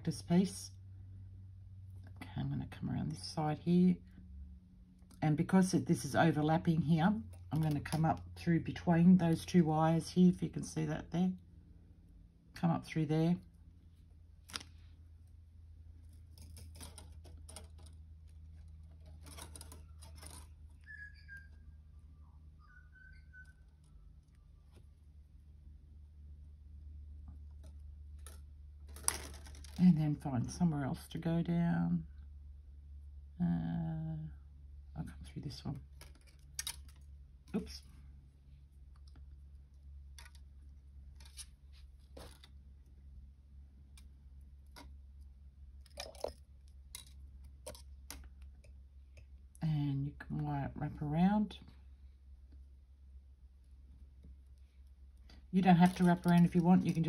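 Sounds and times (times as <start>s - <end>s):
low steady hum: 0.0s - 57.0s
copper wire clicking and scratching: 16.0s - 20.9s, 27.2s - 29.9s, 35.5s - 37.9s, 38.8s - 43.0s, 43.8s - 49.4s, 54.2s - 57.0s
wire scratching and ticking: 16.0s - 21.4s, 35.5s - 37.9s, 54.2s - 57.0s.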